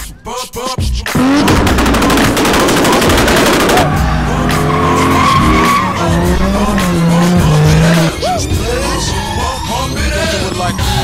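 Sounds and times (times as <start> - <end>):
engine at high revs: 1.1 - 8.2
engine exhaust pops: 1.2 - 3.9
tyre squeal: 4.5 - 9.3.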